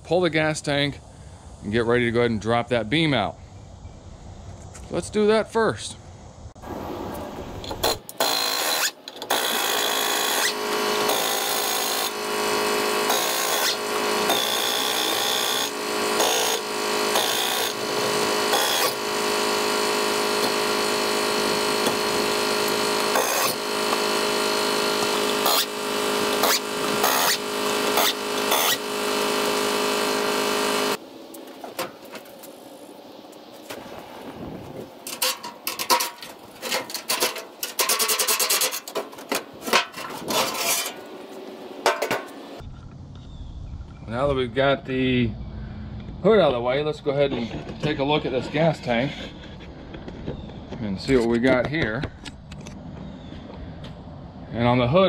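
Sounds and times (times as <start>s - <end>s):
power tool running: 6.6s - 32.4s.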